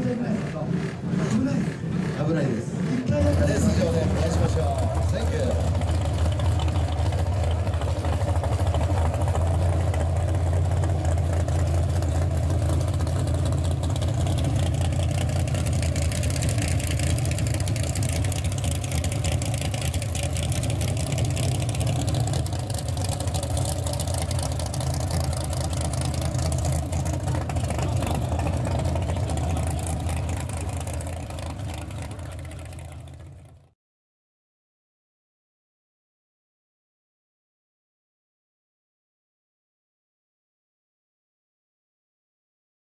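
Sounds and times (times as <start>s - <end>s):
car exhaust deep rumble idling: 0.0s - 33.7s.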